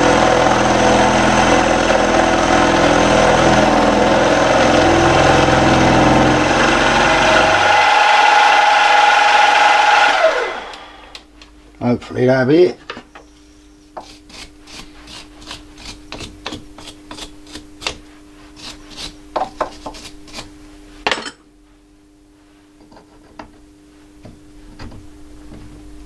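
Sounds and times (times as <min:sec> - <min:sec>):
steady hum: 0:00.0 - 0:26.0
hand file rasping on steel: 0:14.0 - 0:20.5.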